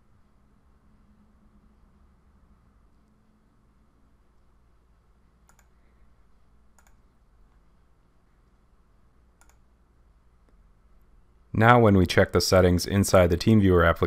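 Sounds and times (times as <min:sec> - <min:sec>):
faint computer mouse clicks: 0:05.4 - 0:05.9, 0:06.7 - 0:07.0, 0:09.4 - 0:09.7.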